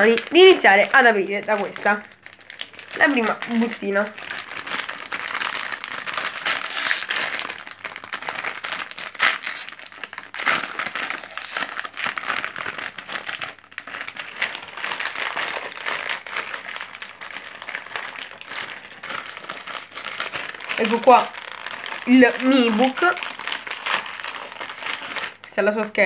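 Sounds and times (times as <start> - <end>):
plastic packet crinkling: 0.0 - 25.7.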